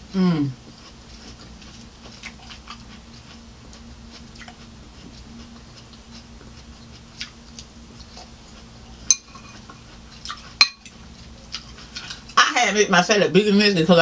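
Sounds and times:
faint steady hum: 0.0 - 14.0
chewing lettuce crunches: 0.6 - 12.4
metal fork tapping glass bowl: 9.1 - 9.6, 10.6 - 10.9.

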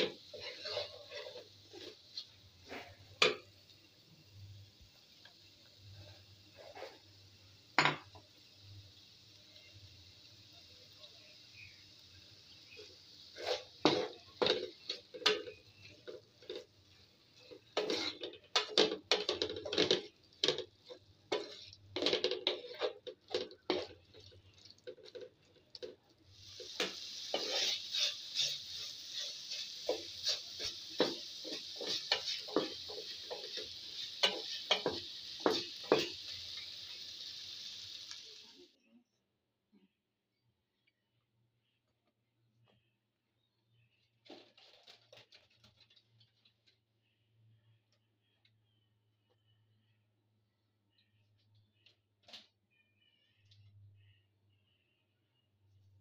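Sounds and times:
wooden spatula scraping a pan: 0.0 - 3.4, 6.0 - 7.2, 12.5 - 36.7
food sizzling: 0.0 - 38.8.

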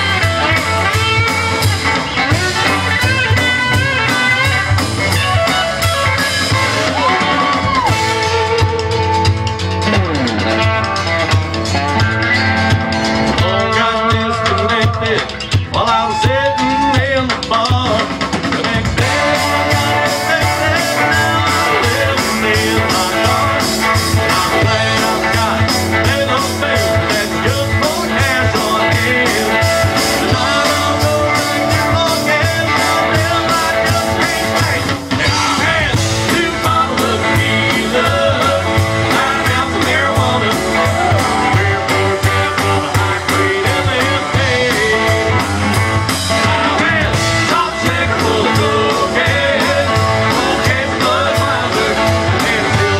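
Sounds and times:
bass guitar: 0.0 - 52.9
drum kit beat: 0.0 - 52.9
electric guitars: 0.0 - 52.9
man singing: 13.2 - 52.9.

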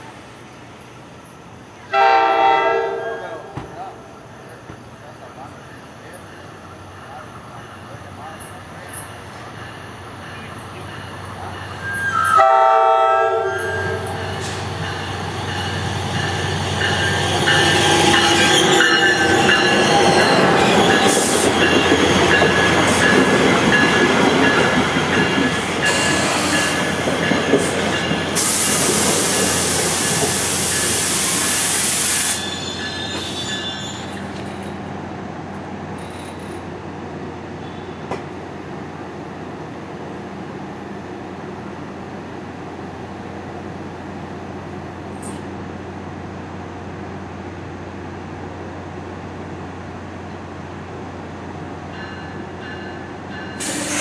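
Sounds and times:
train rolling past: 0.0 - 54.0
locomotive horn blast: 1.9 - 3.6, 12.1 - 14.4
wheels squealing on rails: 5.3 - 34.9, 35.9 - 36.7, 52.0 - 54.0
loud hiss: 28.3 - 33.3, 53.6 - 54.0.

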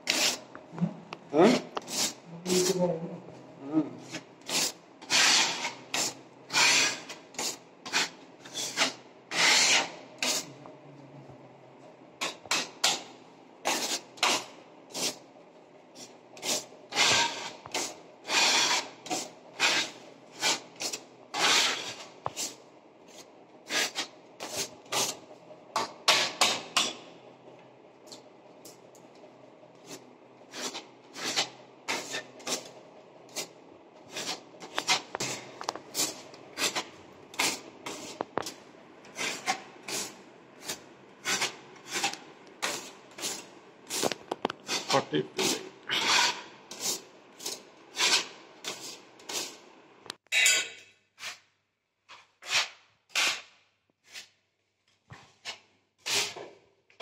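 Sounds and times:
putty knife scraping wall: 0.0 - 0.5, 4.0 - 10.6, 16.4 - 25.2, 25.8 - 27.0, 29.8 - 32.7, 33.3 - 49.6, 52.1 - 54.4, 55.3 - 56.5.

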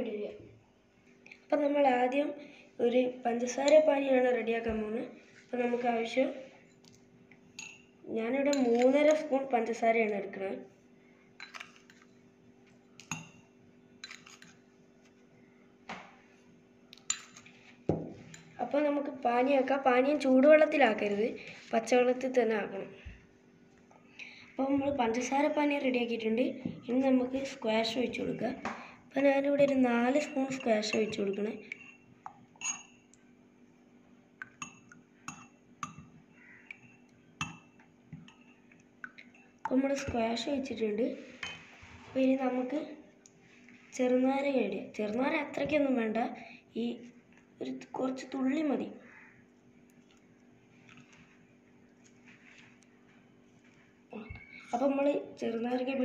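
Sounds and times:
low steady hum: 0.0 - 56.0
metal spoon clinking on glass: 7.6 - 7.9, 14.0 - 14.6, 17.0 - 17.5, 32.6 - 33.0.

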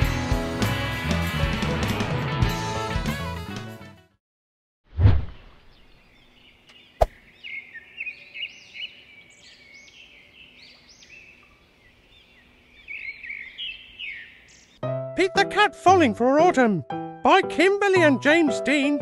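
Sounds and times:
small birds chirping: 5.4 - 14.8.

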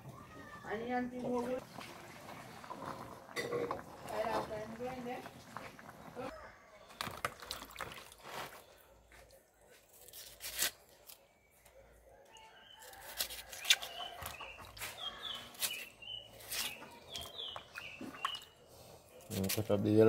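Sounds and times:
knife scraping yam: 9.9 - 11.2, 12.7 - 17.3
bird chirping: 13.6 - 19.3.

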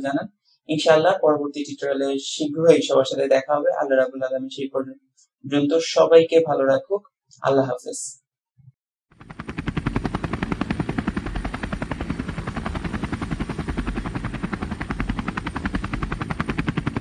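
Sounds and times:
propeller engine drone: 9.1 - 17.0.

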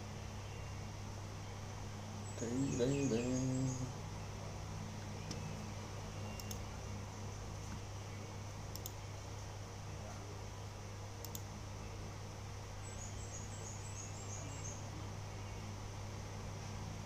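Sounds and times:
low hum: 0.0 - 17.0
faint clicks: 6.4 - 6.7, 8.7 - 9.0, 11.2 - 11.5.

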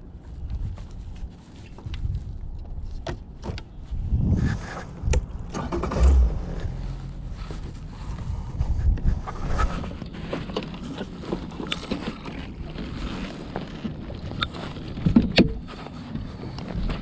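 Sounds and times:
low rumble: 3.7 - 10.3
clicks and knocks of fishing gear: 8.9 - 17.0.

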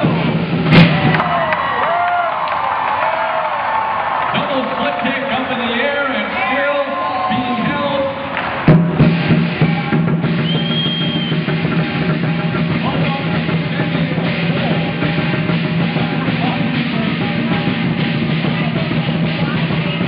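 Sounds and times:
drum beating: 0.0 - 20.0
cymbals clashing: 8.5 - 20.0.

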